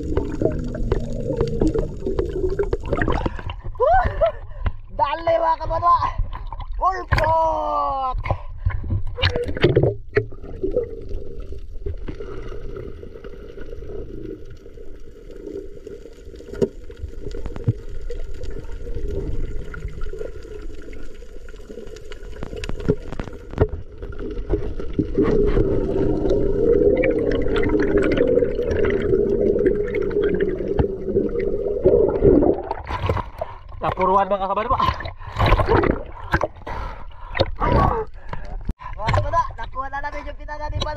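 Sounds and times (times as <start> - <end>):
muffled underwater rumble: 0.0 - 4.7.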